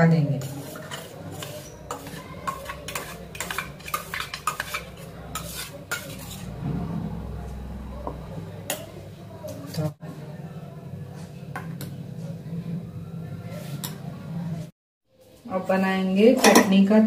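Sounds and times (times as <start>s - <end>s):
spoon scraping metal jar: 0.4s - 6.6s.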